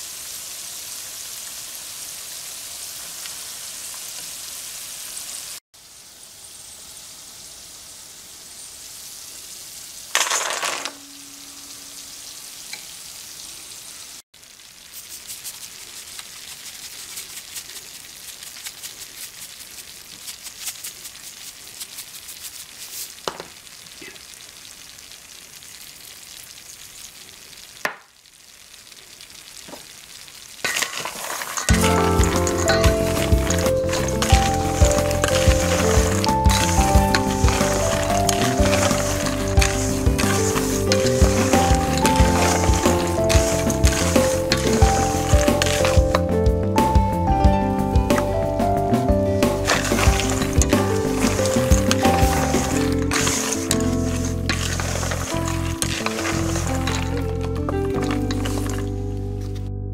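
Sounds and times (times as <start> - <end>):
peanuts sizzling in hot oil: 0.0 - 47.3, 49.3 - 59.0
spatula stirring peanuts in steel bowl: 14.9 - 23.2, 30.7 - 46.2, 49.4 - 57.3, 58.0 - 58.8.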